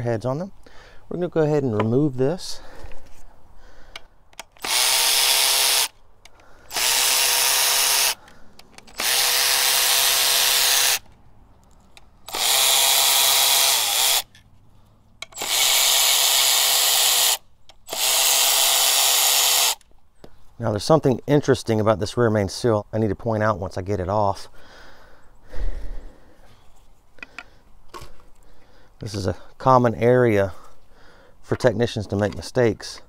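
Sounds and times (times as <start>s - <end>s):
cordless ratchet whine: 4.4s - 11.1s, 12.0s - 14.4s, 15.2s - 19.8s.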